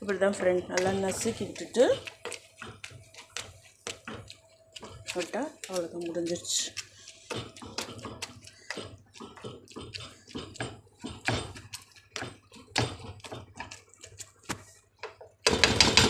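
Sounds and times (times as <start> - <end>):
spatula tapping and scraping on pan: 0.2 - 16.0.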